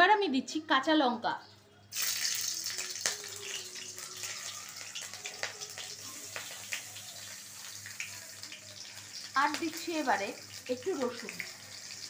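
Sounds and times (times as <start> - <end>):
chillies sizzling in hot oil: 1.9 - 12.0.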